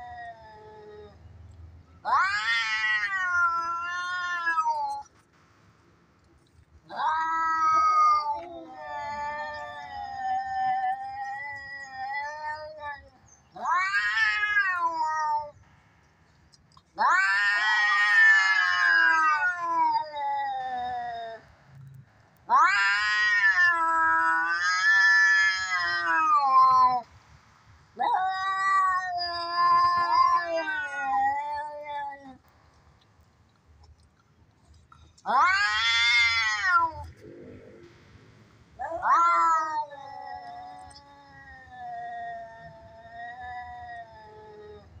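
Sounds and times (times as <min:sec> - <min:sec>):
cats yowling: 0:00.0 - 0:01.3, 0:02.0 - 0:05.1, 0:06.9 - 0:15.6, 0:17.0 - 0:21.5, 0:22.5 - 0:27.1, 0:28.0 - 0:32.4, 0:35.2 - 0:37.4, 0:38.8 - 0:45.0.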